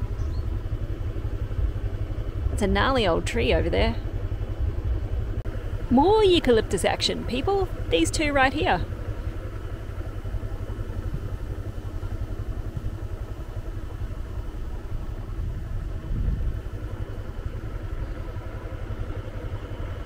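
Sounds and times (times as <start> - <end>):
motorbike engine running: 0.0 - 20.0.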